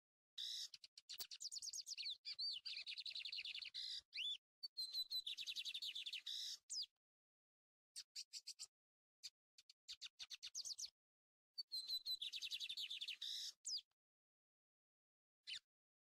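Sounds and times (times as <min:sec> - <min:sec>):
bird singing rapid song: 0:00.4 - 0:06.9, 0:08.0 - 0:11.0, 0:11.6 - 0:14.0, 0:15.4 - 0:15.7.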